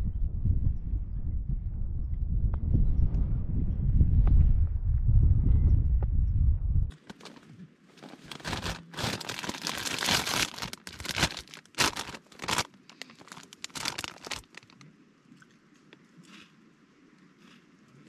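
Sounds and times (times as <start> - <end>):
wind buffeting microphone: 0.0 - 6.9
plastic snack bag crinkling: 6.9 - 14.8.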